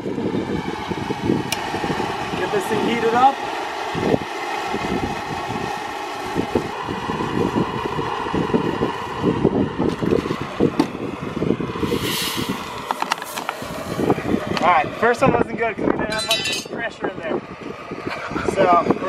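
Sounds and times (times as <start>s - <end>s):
propane torches roaring: 0.0s - 19.0s
gas hissing from bottle: 11.8s - 14.2s.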